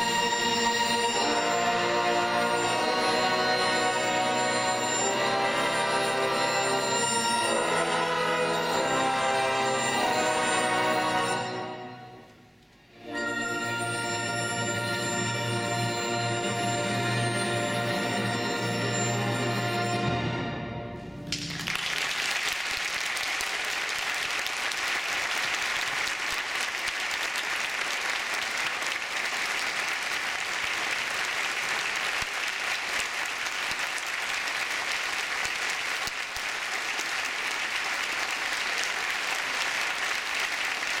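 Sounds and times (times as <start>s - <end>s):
audience applauding: 21.3s - 41.0s.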